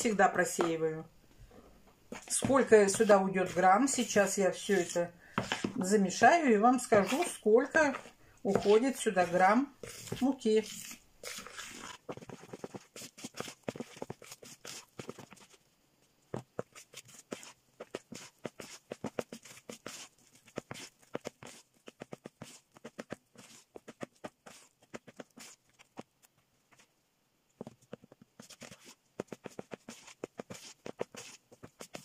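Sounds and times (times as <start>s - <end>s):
spoon scraping plastic bowl: 0.0s - 1.0s, 2.1s - 15.6s, 16.6s - 25.6s, 28.4s - 32.0s.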